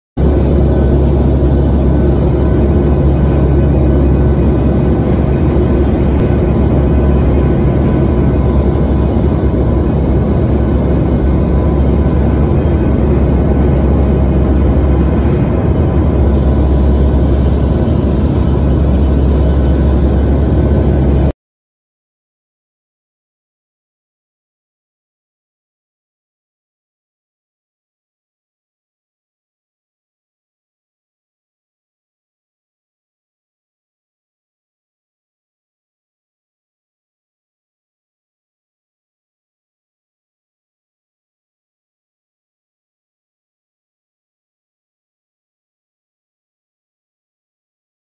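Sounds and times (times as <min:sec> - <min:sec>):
aircraft engine drone in cabin: 0:00.2 - 0:21.3
faint steady whines: 0:00.2 - 0:21.3.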